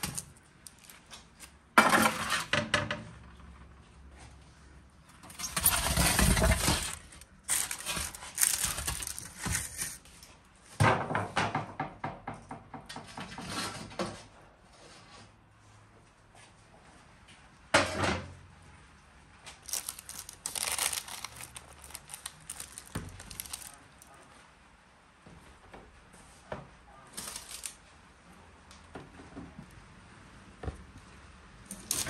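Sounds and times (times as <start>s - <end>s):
metal trays scraping and clattering: 1.8s - 2.8s, 5.2s - 10.0s.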